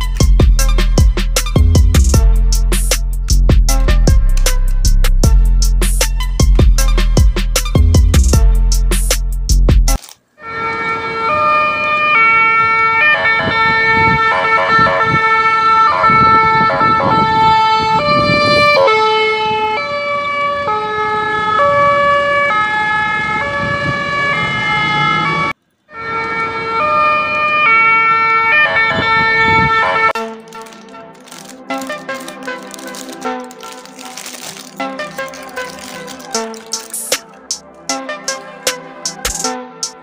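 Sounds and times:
toy electronic siren: 10.4 - 20.7, 21.6 - 30.1.

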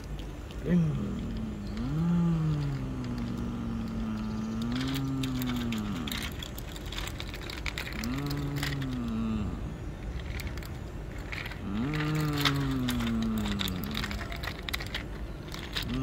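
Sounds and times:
plastic toy trucks clicking on concrete: 0.0 - 16.0
person imitating truck engine: 0.6 - 6.4, 7.9 - 9.8, 11.6 - 14.6.

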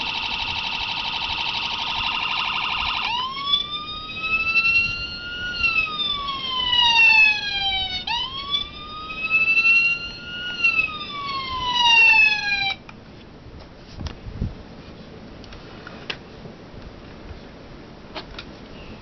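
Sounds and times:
electronic siren wailing: 0.0 - 12.8.

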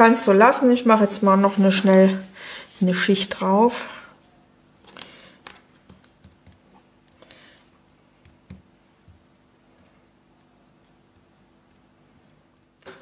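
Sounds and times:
glove fingertip tapping paper: 7.8 - 12.9.

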